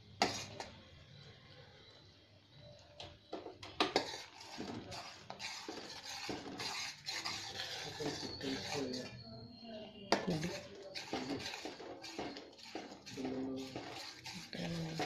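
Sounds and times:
spoon scraping pot: 0.0 - 0.9, 3.3 - 9.2, 10.1 - 15.0
spoon clinking against pot: 10.1 - 15.0.

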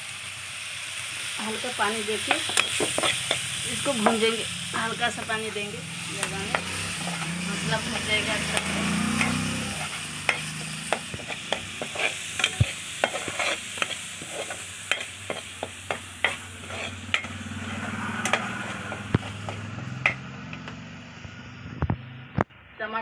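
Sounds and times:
paste sizzling: 0.0 - 21.0
metal spatula scraping pan: 2.2 - 20.3.

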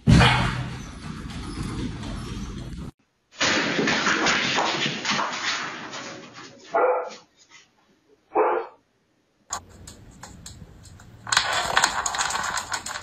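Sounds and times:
dog barking: 6.7 - 7.3, 8.3 - 8.8.

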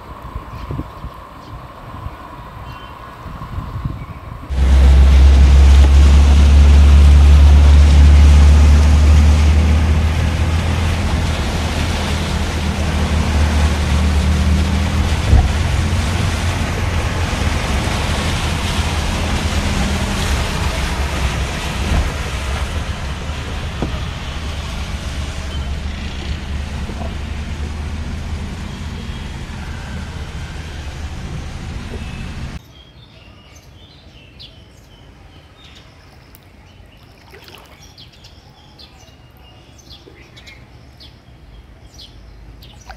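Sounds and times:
road noise: 0.0 - 32.6, 33.8 - 42.9
heavy low rumble: 4.4 - 32.6
water rushing: 4.5 - 32.6, 36.2 - 38.2.

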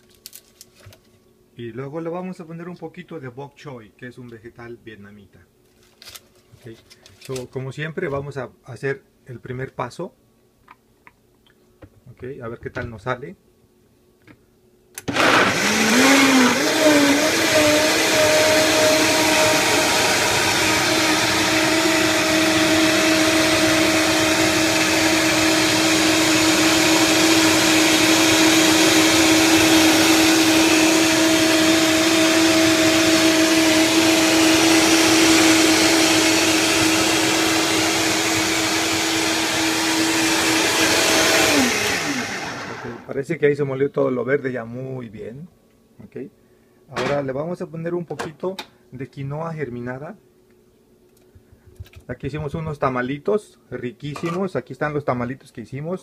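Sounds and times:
blender motor whining: 15.0 - 43.1.

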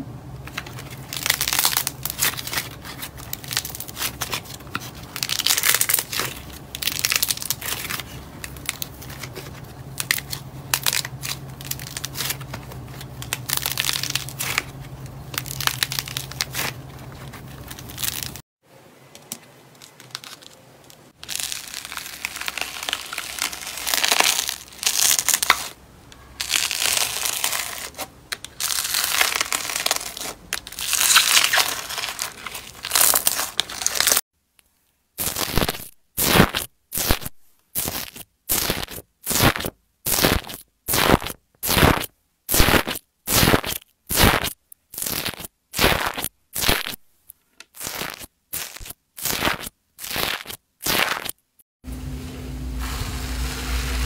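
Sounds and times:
slime crackling and crinkling: 0.6 - 18.4, 19.8 - 34.2, 35.2 - 47.0, 47.7 - 51.4
bead-filled slime crackling: 1.1 - 12.5, 13.2 - 14.7, 15.3 - 16.8, 17.4 - 18.4, 19.8 - 25.8, 26.4 - 34.2, 37.8 - 47.0, 47.7 - 51.4.

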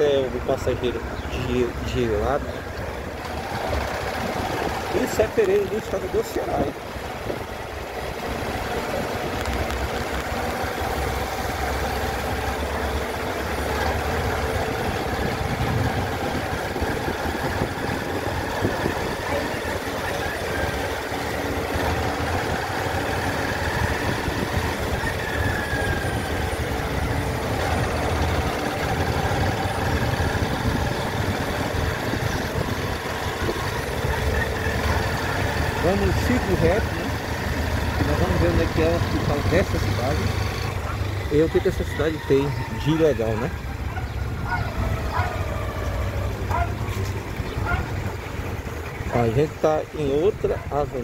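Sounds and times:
road and wind noise: 0.0 - 51.0
vehicle engine running: 0.0 - 51.0.

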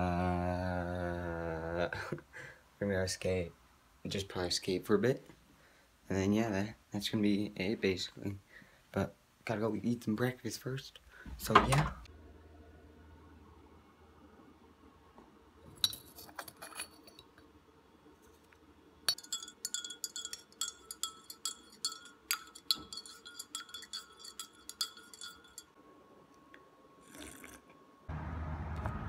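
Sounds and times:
spoon scraping in sugar bowl: 19.1 - 25.7
teaspoon clinking in ceramic mug: 19.1 - 25.7.

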